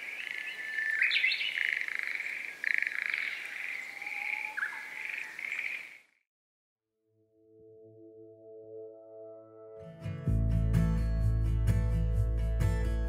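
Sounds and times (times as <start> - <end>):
thin whistled animal calls: 0.0 - 6.0
frog-like croaks: 1.4 - 6.1.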